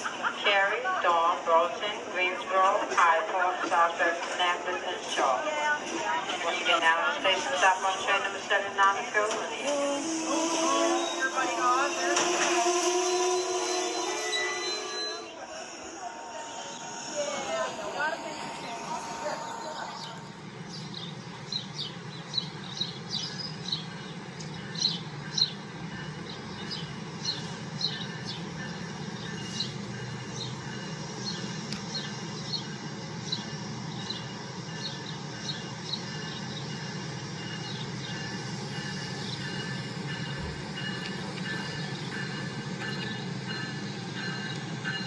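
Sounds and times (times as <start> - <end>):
approaching train whine: 0.0 - 45.0
small birds chirping: 18.0 - 45.0.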